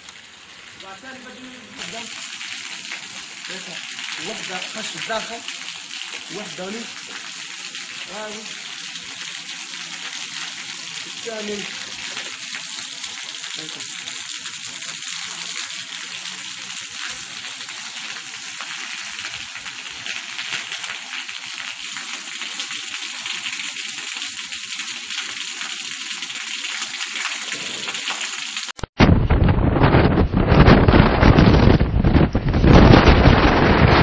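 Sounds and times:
crackling hiss: 0.0 - 22.6.

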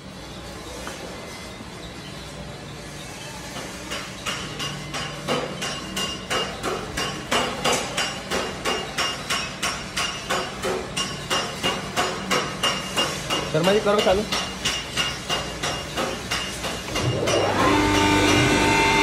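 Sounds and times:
hammer striking metal: 3.6 - 19.0
low machine hum: 17.0 - 19.0.

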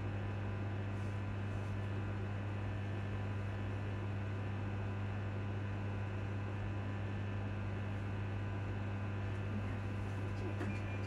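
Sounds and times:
train cooling fans humming: 8.6 - 11.0.

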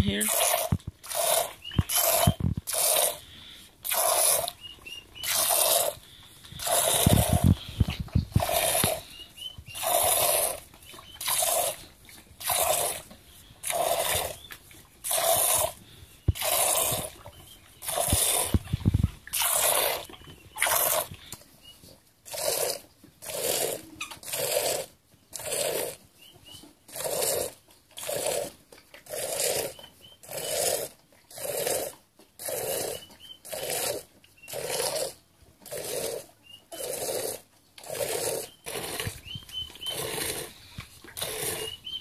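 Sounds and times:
milk squirting into a pot: 0.2 - 4.6, 5.2 - 21.4.

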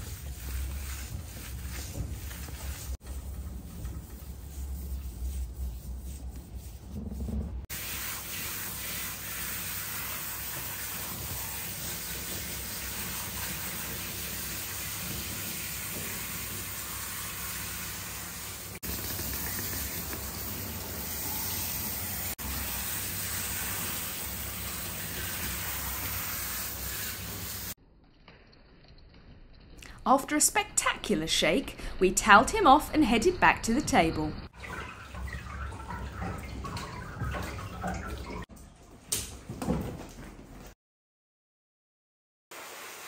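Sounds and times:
shower sprayer water spattering: 7.7 - 27.8.

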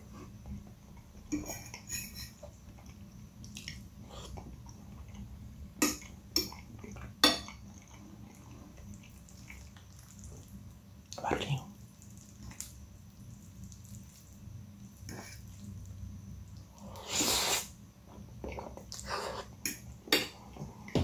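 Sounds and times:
chewing noodles: 7.7 - 10.6.

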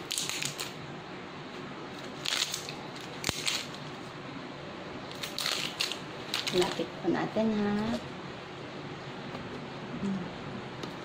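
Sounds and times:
plastic wrap crinkling: 0.0 - 0.8, 2.0 - 3.9, 5.1 - 6.9
scissors snipping plastic wrap: 0.0 - 0.8, 2.1 - 3.8, 5.1 - 6.8.

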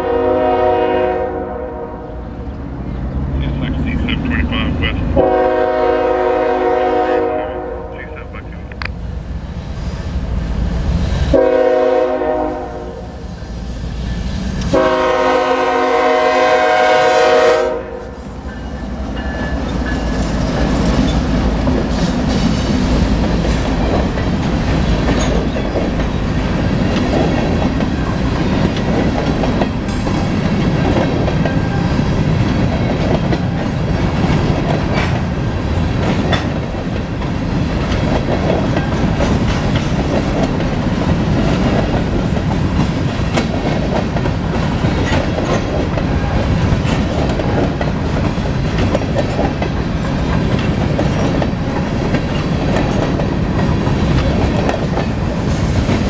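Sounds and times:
locomotive air horn blasts: 0.0 - 2.2, 5.2 - 8.2, 11.3 - 13.1, 14.7 - 18.2
train wheels clacking over rail joints: 18.4 - 56.0.

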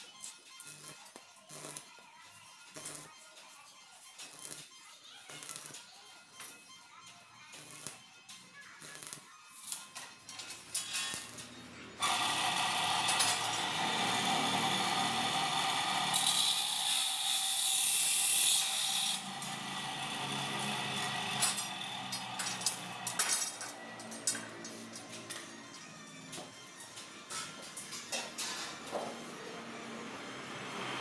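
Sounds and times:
arc welding crackling hiss: 1.5 - 1.8, 8.8 - 9.8, 10.8 - 23.6.

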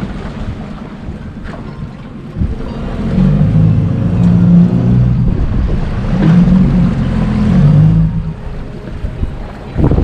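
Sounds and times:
boat motor running unevenly: 0.0 - 10.0
waves slapping hull: 0.0 - 10.0
wind buffeting microphone: 2.2 - 10.0.

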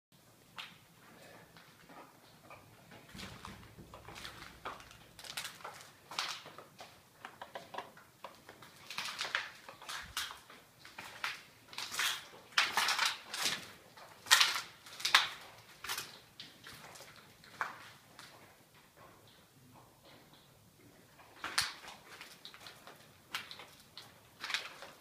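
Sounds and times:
footsteps on gritty concrete: 3.1 - 6.5.

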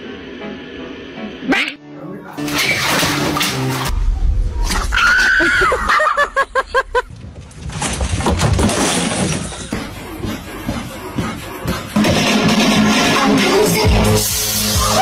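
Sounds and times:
noisy clatter: 7.0 - 14.1.

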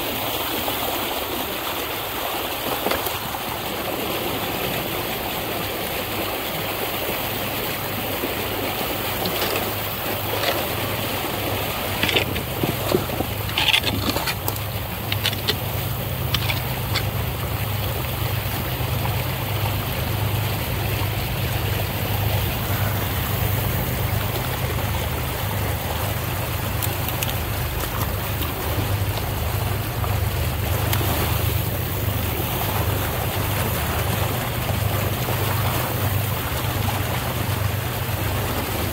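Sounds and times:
water gushing from a drain pipe: 0.0 - 38.9
rake knocking and scraping: 8.9 - 17.5.

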